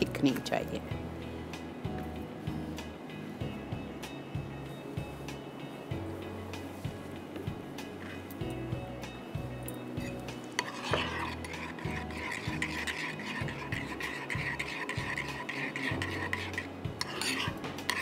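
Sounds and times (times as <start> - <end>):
spoon stirring in ceramic bowl: 9.7 - 18.0.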